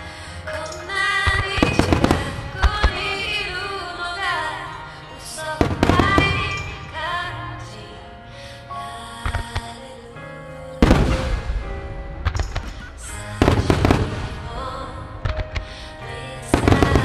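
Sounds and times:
music: 0:00.0 - 0:17.0
firework shells bursting: 0:00.5 - 0:03.7, 0:05.6 - 0:07.0, 0:12.2 - 0:14.6.

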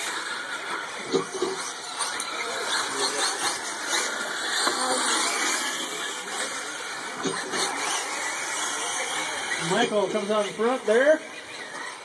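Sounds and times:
rc truck motors whining: 0:00.0 - 0:12.0.

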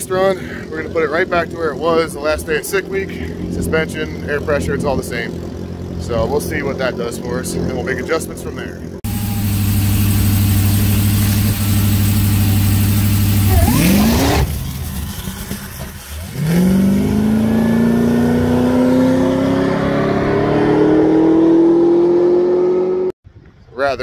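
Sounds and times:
car engine revving: 0:01.2 - 0:23.1
rear tyres wheel-hopping: 0:09.0 - 0:16.7.

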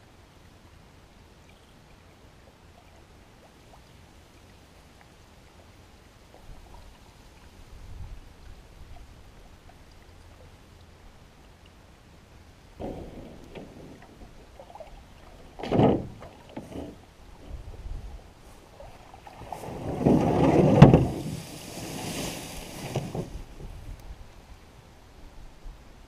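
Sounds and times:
canoe paddle strokes: 0:02.4 - 0:10.8, 0:12.8 - 0:24.5
hull rubbing with rushing water: 0:12.7 - 0:24.3
water sloshing: 0:12.7 - 0:24.4
sharp splash: 0:18.7 - 0:23.5.

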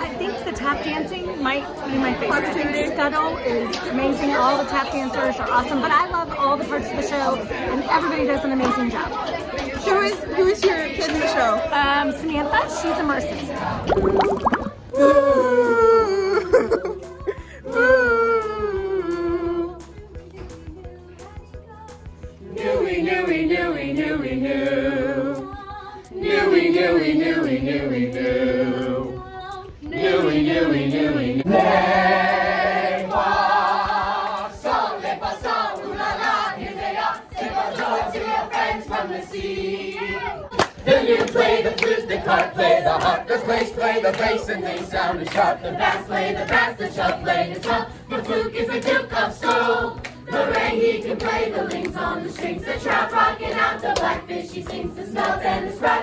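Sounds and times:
young voices singing in unison: 0:00.0 - 0:14.9, 0:16.6 - 0:56.0.

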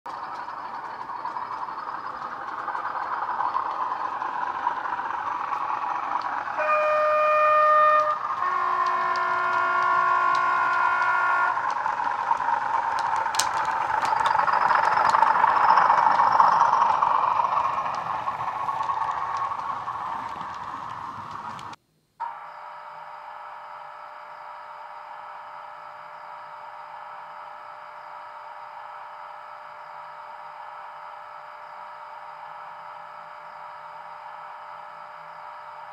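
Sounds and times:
diesel engine running: 0:00.1 - 0:22.4
two-tone horn: 0:06.6 - 0:11.8.

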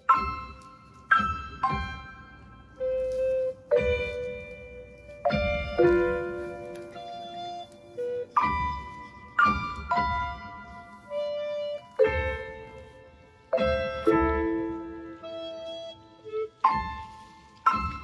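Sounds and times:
slow keyboard melody: 0:00.0 - 0:18.0.

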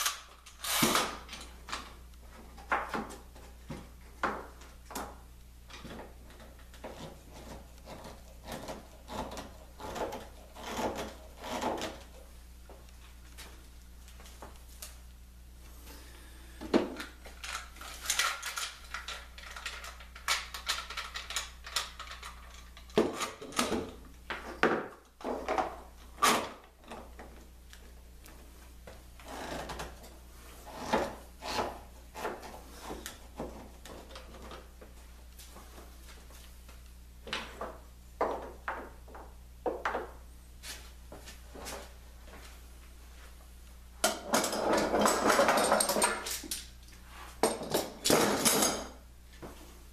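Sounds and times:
metal clamps clacking and rattling: 0:44.1 - 0:46.6.

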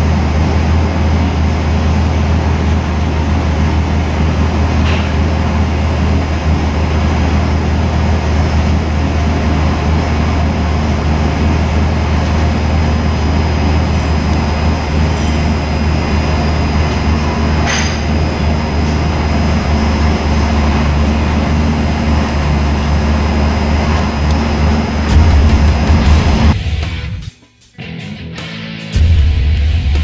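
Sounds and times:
race engine droning: 0:00.0 - 0:27.2.

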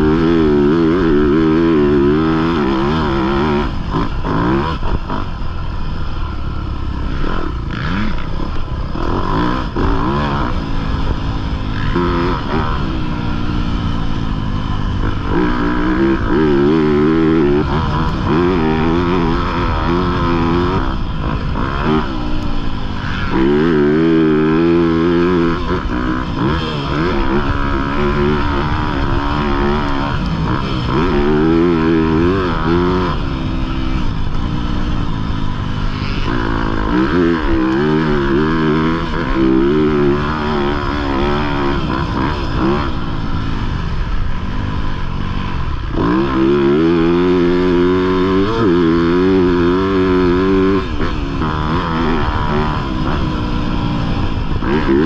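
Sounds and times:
motorcycle engine revving: 0:00.0 - 0:55.0.

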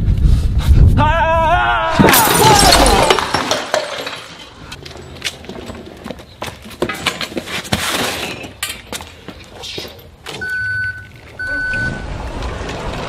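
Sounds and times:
hand truck rattling over pavement: 0:03.1 - 0:09.4
steady beeps: 0:10.4 - 0:12.1.

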